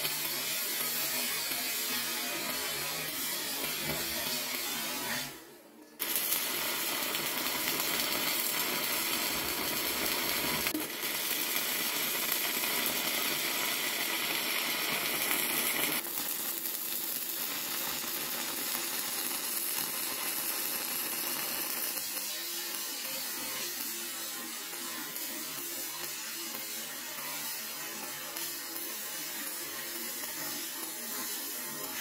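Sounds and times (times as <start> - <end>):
arc welding crackle: 0.0 - 32.0.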